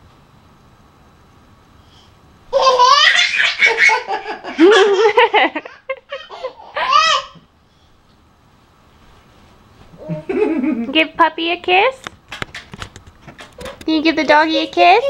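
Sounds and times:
toddler laughing loudly: 0:02.5 - 0:07.4.

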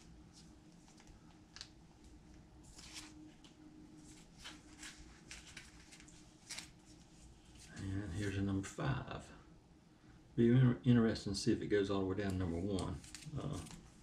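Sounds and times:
low room hum: 0:00.0 - 0:14.0
comic books rustling and sliding: 0:02.6 - 0:08.5, 0:12.6 - 0:14.0.

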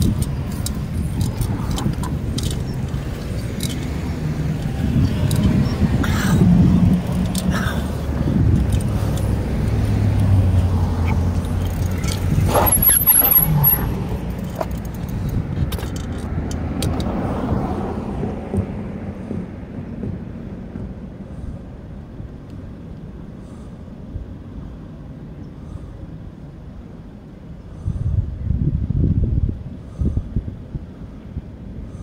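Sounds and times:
light rattling clicks: 0:00.0 - 0:05.8, 0:08.4 - 0:09.4, 0:11.3 - 0:17.2
cars passing: 0:00.0 - 0:28.4
low traffic rumble: 0:00.0 - 0:32.0.

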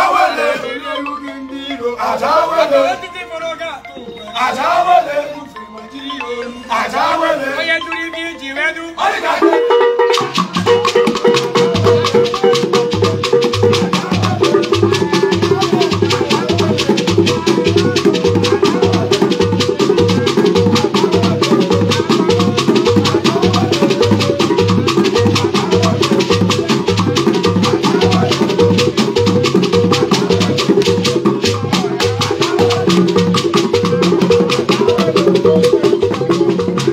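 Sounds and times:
hand drums fast beat: 0:09.4 - 0:36.9
rattling shakers: 0:10.1 - 0:36.9.

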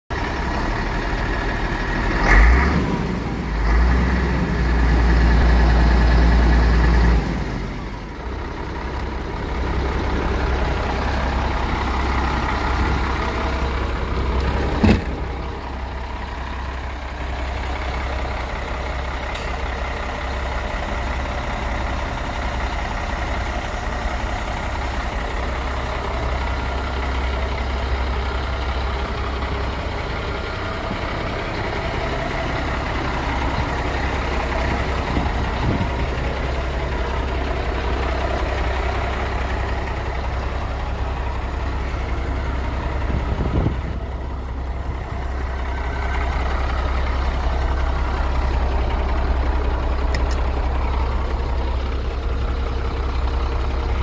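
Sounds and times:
diesel engine idling: 0:00.1 - 0:54.0.

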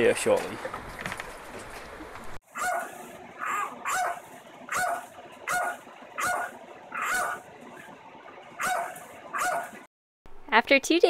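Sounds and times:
dog barking: 0:02.6 - 0:07.4, 0:08.6 - 0:09.8.

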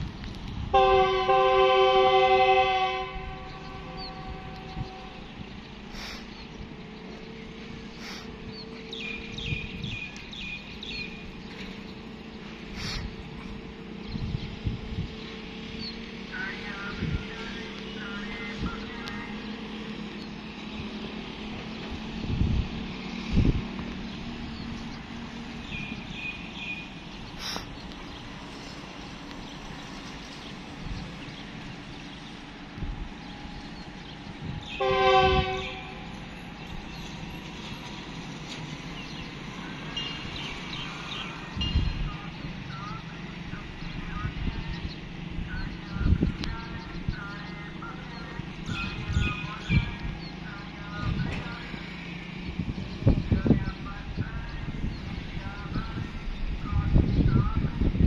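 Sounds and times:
train horn: 0:00.7 - 0:05.4, 0:34.6 - 0:36.3
bird chirping: 0:24.0 - 0:51.6.

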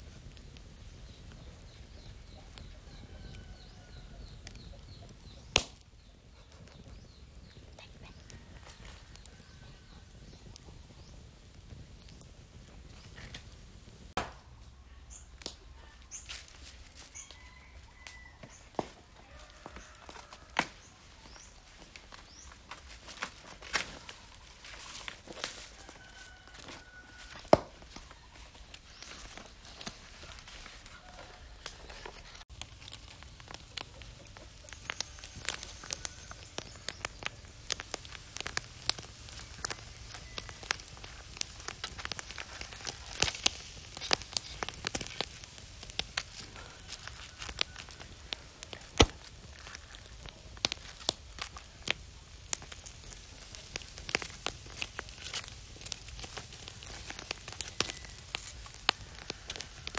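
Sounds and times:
wood fire crackling and popping: 0:00.0 - 0:59.9.

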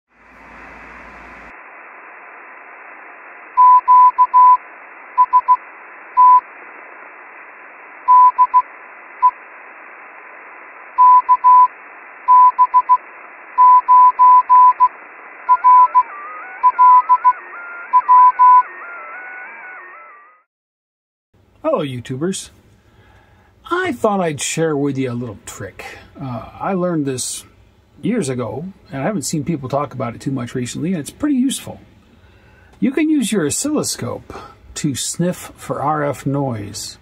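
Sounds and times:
radio static: 0:00.2 - 0:20.4
morse code beeps: 0:03.6 - 0:04.6, 0:05.2 - 0:05.6, 0:06.2 - 0:06.4, 0:08.1 - 0:09.4, 0:11.0 - 0:11.7, 0:12.3 - 0:13.0, 0:13.6 - 0:14.9, 0:15.5 - 0:18.7.

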